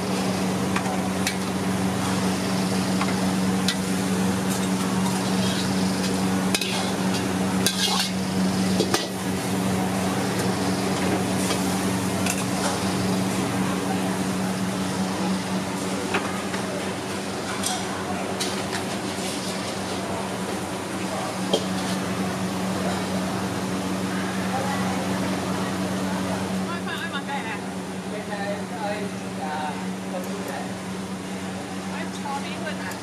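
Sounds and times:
low hum of wok station: 0:00.0 - 0:33.0
ladle scraping a wok: 0:04.5 - 0:09.1.

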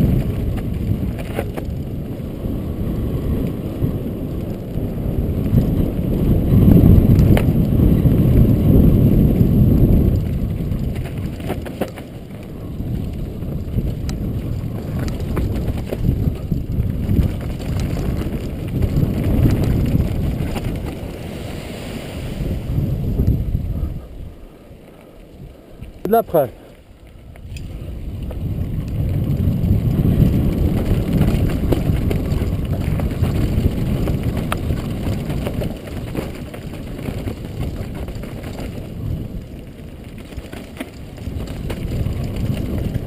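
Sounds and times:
bike rattling over bumps: 0:00.0 - 0:21.6, 0:22.4 - 0:43.0
tyres on loose dirt: 0:00.0 - 0:43.0
wind rush on microphone: 0:00.0 - 0:43.0.

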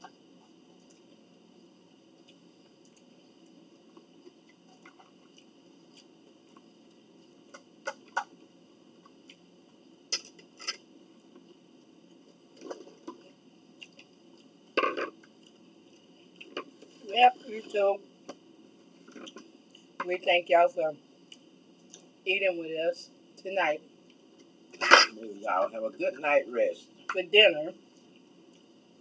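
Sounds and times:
quiet chewing: 0:00.0 - 0:01.2, 0:02.1 - 0:08.3, 0:11.3 - 0:17.0, 0:21.2 - 0:22.1, 0:27.9 - 0:28.8.

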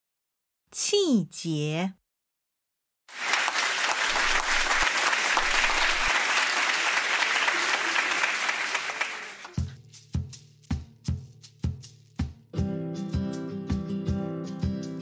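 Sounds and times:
group applauding: 0:03.1 - 0:09.6.

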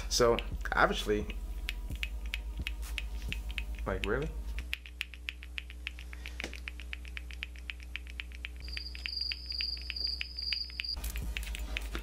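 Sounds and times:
rapid clock-like ticking: 0:01.6 - 0:12.0
high pulsing cricket chirp: 0:08.6 - 0:11.0.

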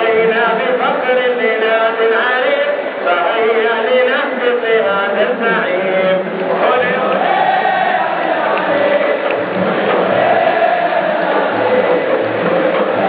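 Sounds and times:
football crowd chanting: 0:06.4 - 0:13.0.

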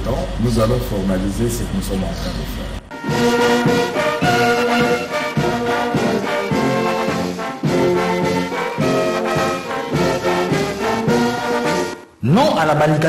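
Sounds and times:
brass held notes: 0:02.9 - 0:12.1.

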